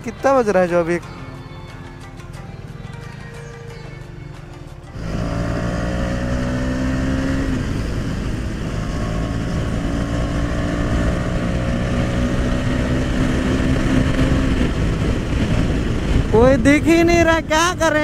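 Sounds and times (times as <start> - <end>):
motorcycle engine running: 4.9 - 18.0
wind rushing: 5.0 - 18.0.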